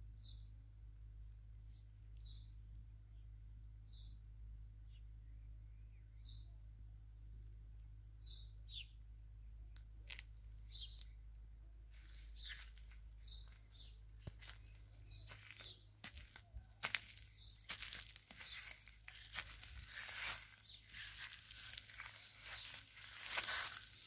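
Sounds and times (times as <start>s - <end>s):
small birds chirping: 0.0s - 24.0s
footsteps through grass: 11.9s - 24.0s
leaves rustling: 15.3s - 24.0s.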